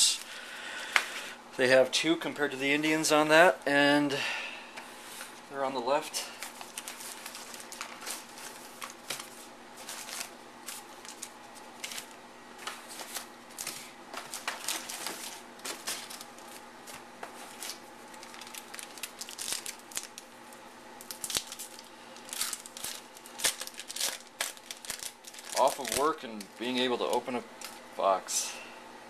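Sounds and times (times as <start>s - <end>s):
foil wrappers crinkling: 6.2s - 27.9s
foil pack tearing: 6.4s - 12.2s, 12.8s - 16.6s, 17.4s - 20.3s, 21.0s - 27.8s.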